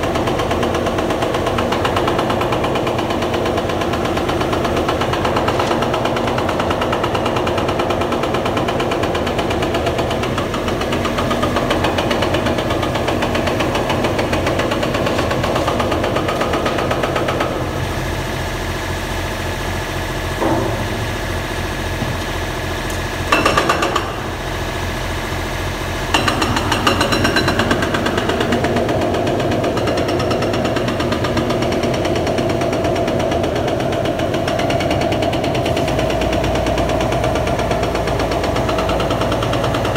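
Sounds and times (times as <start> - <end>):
construction machinery rattling: 0.0 - 17.9, 19.7 - 39.9.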